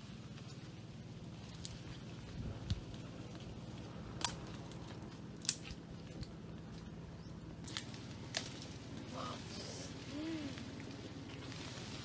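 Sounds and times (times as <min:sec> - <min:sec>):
twigs and stems snapping: 0:02.5 - 0:06.9, 0:07.6 - 0:09.1.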